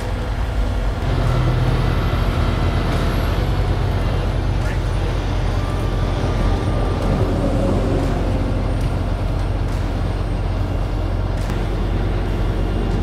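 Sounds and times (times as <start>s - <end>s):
diesel truck engine drone: 0.0s - 13.0s.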